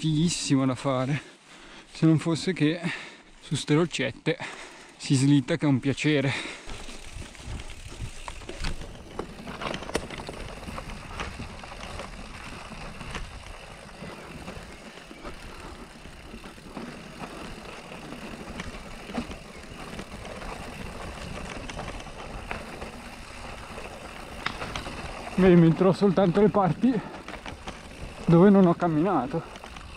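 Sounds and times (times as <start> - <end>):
bike tyres over stones: 0.0 - 29.9
bike knocks and rattles: 6.6 - 29.9.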